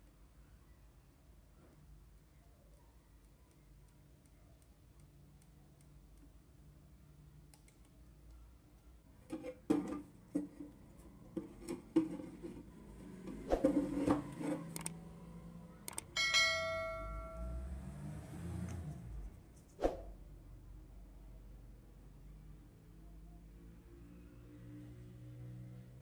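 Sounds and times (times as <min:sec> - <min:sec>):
sharp clicks and knocks: 0:13.3 - 0:15.0.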